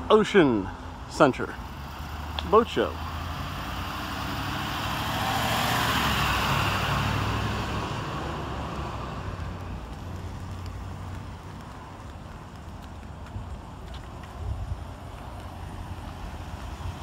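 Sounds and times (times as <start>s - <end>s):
vehicle driving past: 1.6s - 12.6s
steady low rumble: 8.0s - 17.0s.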